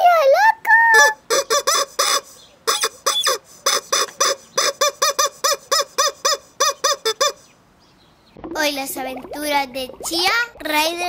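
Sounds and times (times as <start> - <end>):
rubber chicken toy squawking: 0.9 - 7.4.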